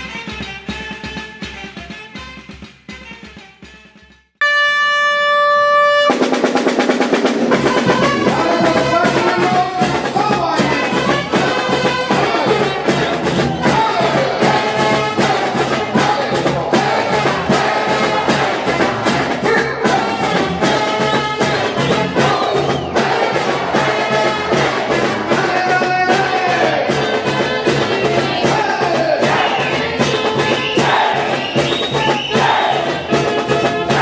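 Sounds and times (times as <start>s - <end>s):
brass band dance music: 0.0s - 34.0s
held high trumpet note: 4.4s - 6.5s, 7.5s - 9.9s.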